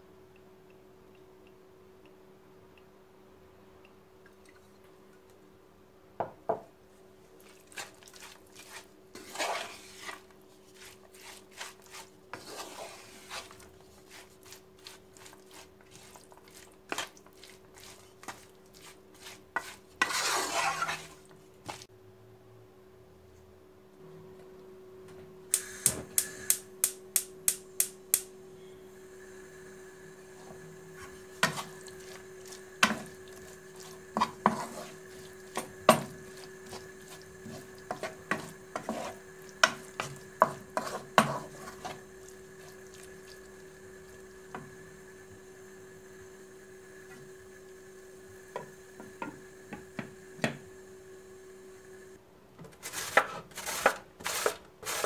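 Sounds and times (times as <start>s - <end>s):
wooden spoon scraping a pan: 7.4s - 21.9s, 30.3s - 43.4s, 52.6s - 55.0s
vegetable rubbed on metal grater: 7.6s - 21.8s, 31.4s - 42.0s, 52.8s - 55.0s
steady hum: 24.0s - 52.2s.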